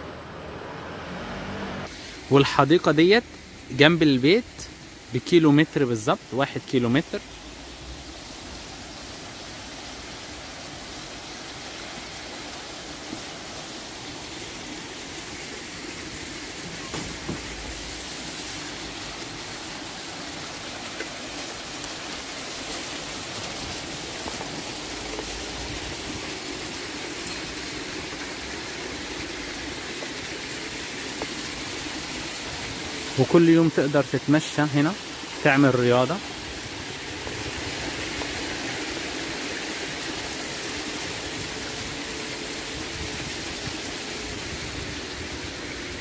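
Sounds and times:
fountain jets splashing: 1.8s - 46.0s.

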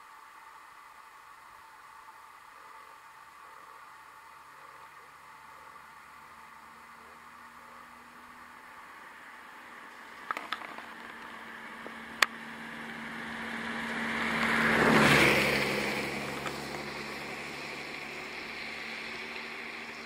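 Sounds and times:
vehicle passing by: 4.8s - 20.0s.

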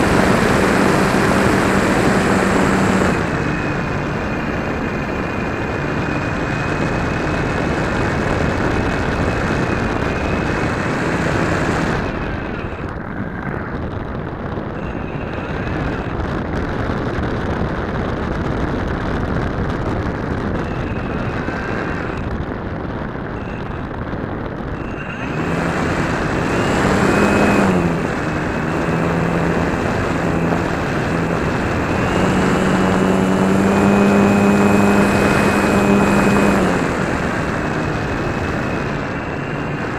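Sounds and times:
model airplane motor and propeller: 0.0s - 39.9s
rushing wind: 0.0s - 39.9s.

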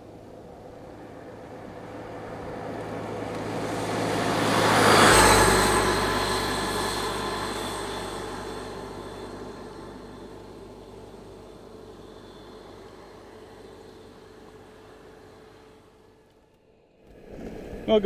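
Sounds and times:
scooter passing by: 0.0s - 16.3s.

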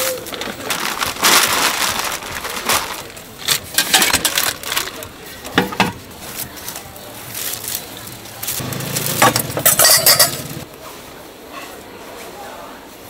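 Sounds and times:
plastic bags crinkling: 0.0s - 10.6s
metal pot lid clanking: 9.2s - 10.6s.

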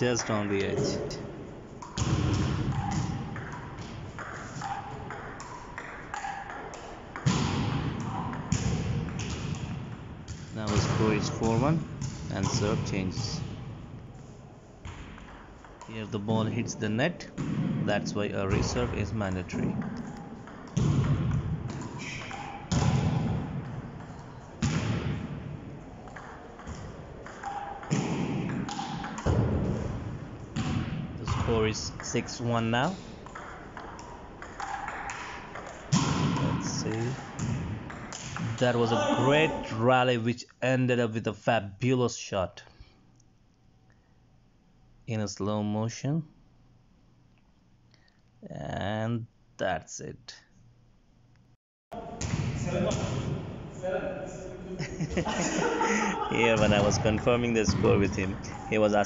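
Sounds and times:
echoing thuds: 0.0s - 14.2s, 17.2s - 32.2s, 32.8s - 38.6s, 52.1s - 53.7s, 55.1s - 59.0s
ping-pong ball bouncing: 1.8s - 9.7s, 19.7s - 24.9s, 26.0s - 29.4s, 33.2s - 36.4s.

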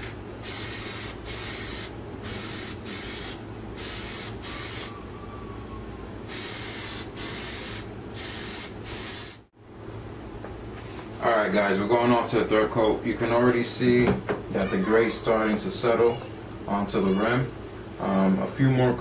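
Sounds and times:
aerosol spray hissing bursts: 0.4s - 4.9s, 6.3s - 9.5s.

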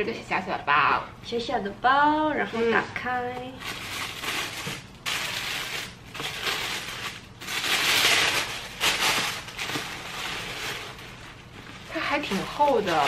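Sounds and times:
tissue paper rustling: 3.6s - 13.0s.

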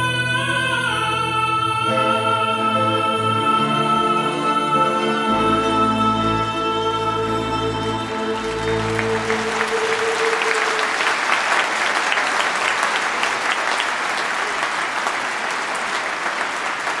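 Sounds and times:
audience applause: 7.6s - 17.0s.

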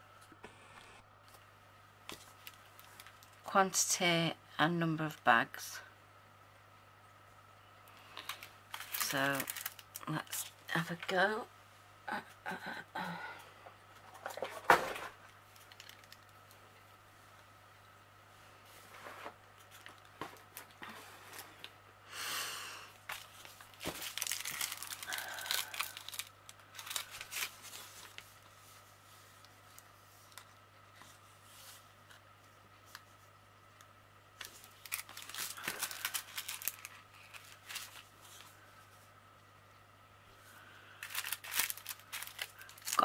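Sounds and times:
plastic bags crinkling: 2.1s - 3.5s, 8.1s - 11.1s, 14.1s - 16.5s, 23.0s - 28.5s, 34.4s - 38.5s, 41.0s - 43.0s.

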